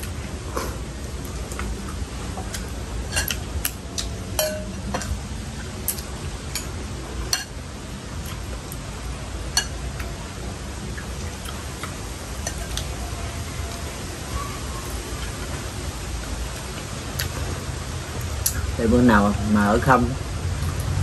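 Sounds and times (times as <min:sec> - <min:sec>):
utensils clinking against dishes: 0:03.1 - 0:05.2.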